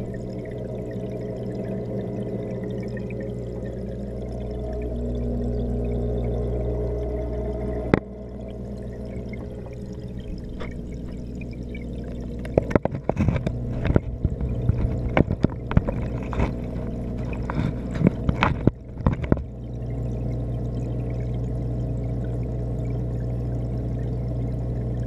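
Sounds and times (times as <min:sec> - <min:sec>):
low hum: 0:00.0 - 0:25.0
muffled underwater bubbling: 0:00.0 - 0:25.0
sharp clicks and knocks: 0:12.1 - 0:19.5.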